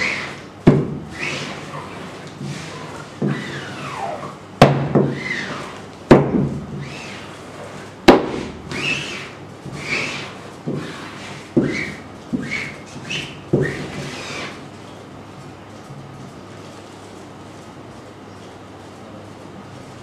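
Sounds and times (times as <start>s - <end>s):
squeegee scraping across mesh: 1.1s - 4.4s, 8.7s - 14.6s
sharp knocks: 4.6s - 5.2s, 6.1s - 6.6s, 8.1s - 8.6s.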